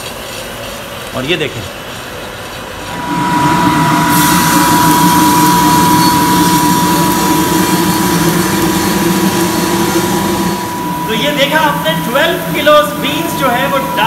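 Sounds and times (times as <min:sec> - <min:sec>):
coffee roaster rumble and whine: 0:00.0 - 0:14.0.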